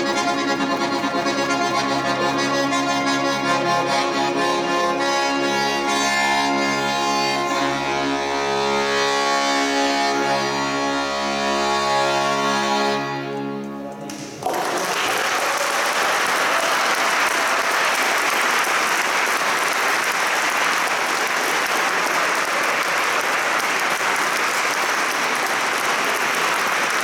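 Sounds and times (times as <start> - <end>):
accordion chord: 0.0 - 14.4
audience applause: 14.1 - 27.0.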